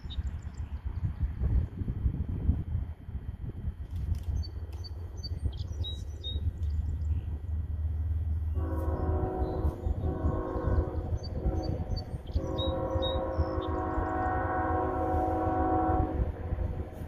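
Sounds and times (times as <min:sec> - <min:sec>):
birds chirping: 0:04.3 - 0:07.5, 0:08.2 - 0:14.4
locomotive air horn blasts: 0:08.5 - 0:16.4.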